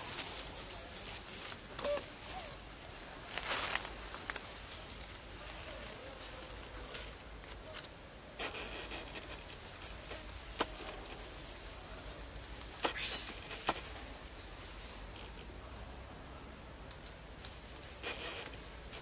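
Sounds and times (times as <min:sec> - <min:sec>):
insects hissing: 0:08.3 - 0:16.0, 0:17.1 - 0:19.0.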